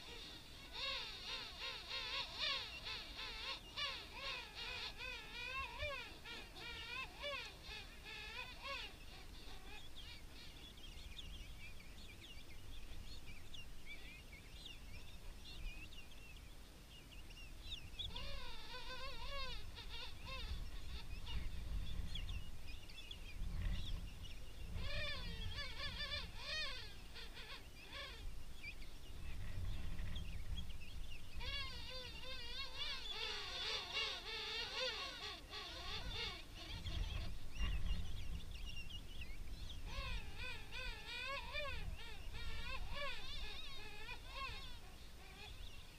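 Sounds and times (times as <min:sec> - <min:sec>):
steady low rumble: 0:19.5 - 0:33.1.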